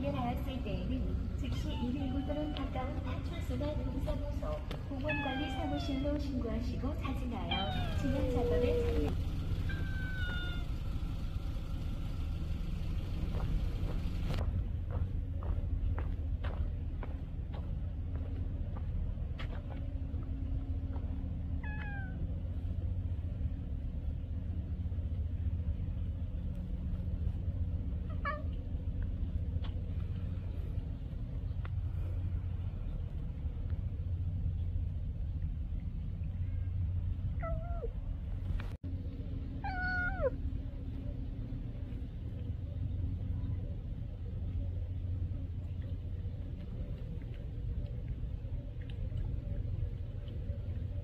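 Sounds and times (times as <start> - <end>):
low rumble: 0.0 - 51.0
cat meowing: 1.5 - 2.8, 5.0 - 6.2, 7.4 - 9.1, 9.7 - 10.7, 21.6 - 22.2, 39.6 - 40.4.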